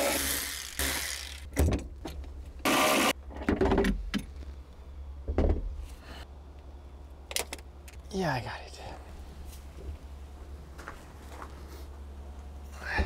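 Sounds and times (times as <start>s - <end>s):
small motor whirring: 0.0s - 1.5s
car battery knocks and clunks: 5.3s - 5.7s.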